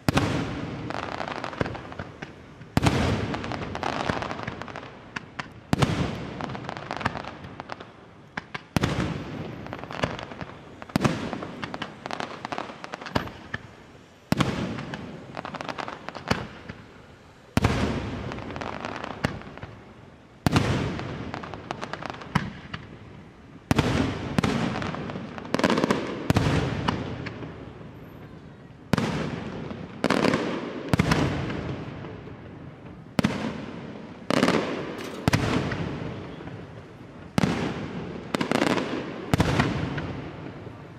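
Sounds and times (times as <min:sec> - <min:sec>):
firework shells booming: 0:33.2 - 0:40.8.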